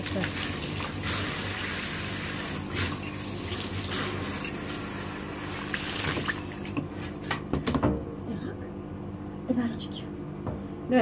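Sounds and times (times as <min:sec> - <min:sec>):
shower water running into bathtub: 0:00.0 - 0:07.1.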